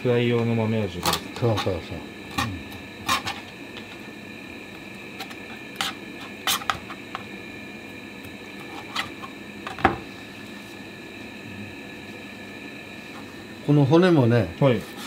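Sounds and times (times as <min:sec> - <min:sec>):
hum of kitchen equipment: 0:00.0 - 0:15.0
knife knocking on cutting board: 0:09.7 - 0:10.0.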